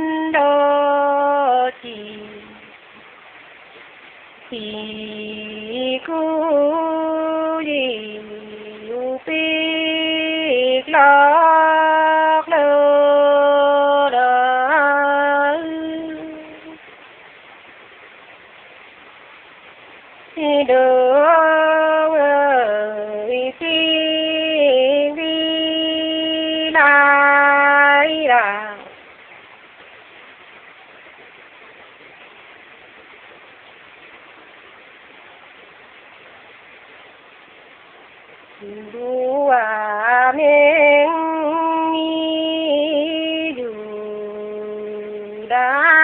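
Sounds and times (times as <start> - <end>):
woman singing unaccompanied: 0.0 - 2.9, 4.4 - 16.9, 20.3 - 29.0, 38.6 - 46.0.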